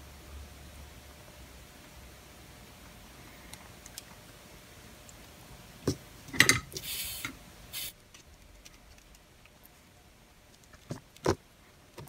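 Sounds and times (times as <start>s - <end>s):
scraping hisses: 6.8s - 8.0s.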